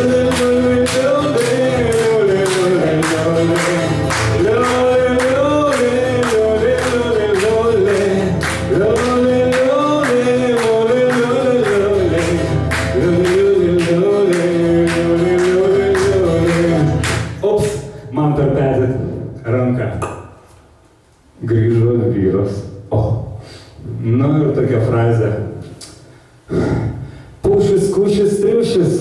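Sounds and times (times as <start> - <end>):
man singing a lullaby: 0.0 - 18.2
acoustic guitar strumming: 0.0 - 18.8.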